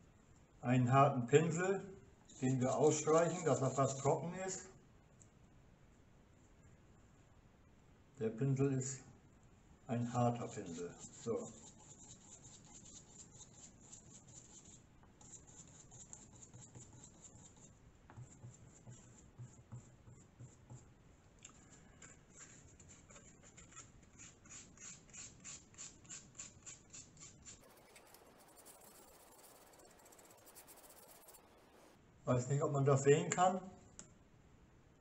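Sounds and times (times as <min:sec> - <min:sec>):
bristle brush scratching on card: 0:02.3 - 0:04.6, 0:10.2 - 0:20.9, 0:21.5 - 0:32.0.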